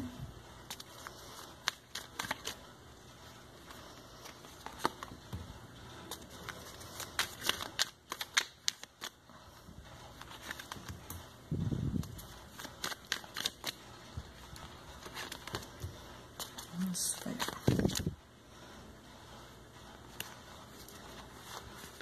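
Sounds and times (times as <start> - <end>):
playing cards clicking and flicking: 0.6 - 2.6, 3.6 - 9.2, 10.1 - 13.9, 14.6 - 18.2, 20.1 - 22.0.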